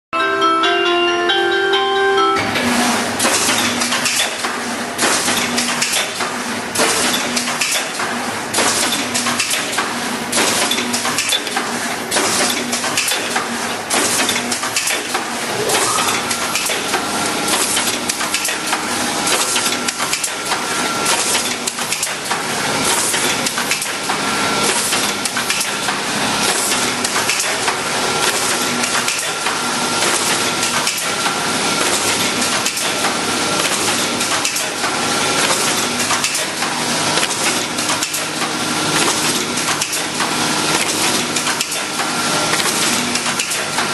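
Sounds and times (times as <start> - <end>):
welding machine clattering: 2.6 - 31.2.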